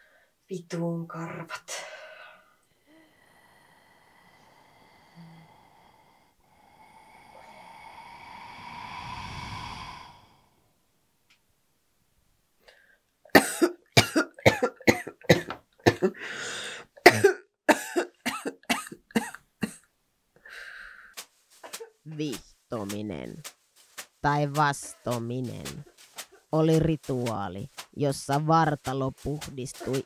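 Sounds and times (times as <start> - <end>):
hiss: 6.0 - 10.5
woman coughing hard: 13.3 - 16.2, 17.0 - 19.8.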